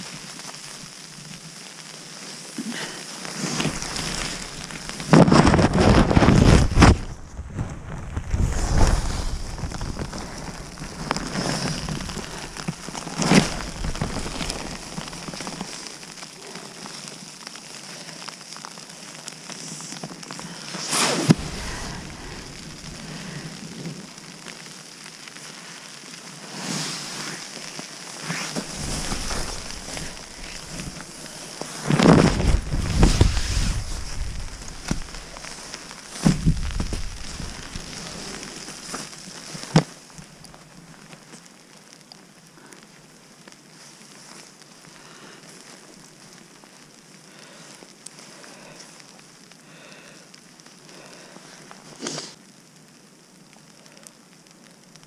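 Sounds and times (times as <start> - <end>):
rain jacket rustling: 0.0 - 41.4
freezing rain pattering on tarp: 0.0 - 55.0.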